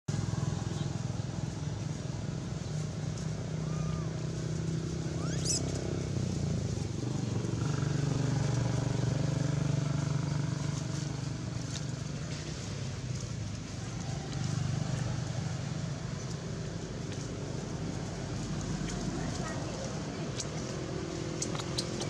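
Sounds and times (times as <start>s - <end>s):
engine humming: 0.1s - 22.0s
high rising squeak: 5.1s - 5.7s.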